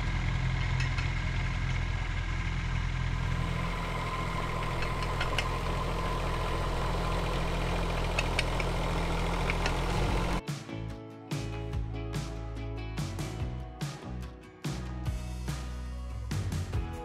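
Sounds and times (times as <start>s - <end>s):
excavator diesel engine running: 0.0s - 10.4s.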